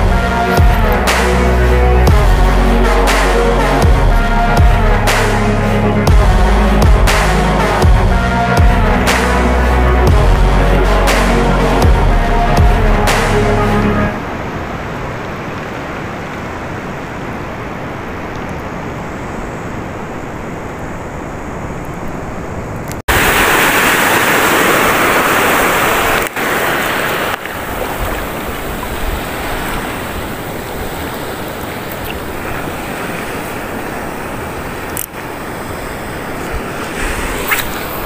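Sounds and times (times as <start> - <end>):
wind: 0.0 - 38.0
sea surf washing over rocks: 14.1 - 38.0
small waves breaking: 23.1 - 38.0.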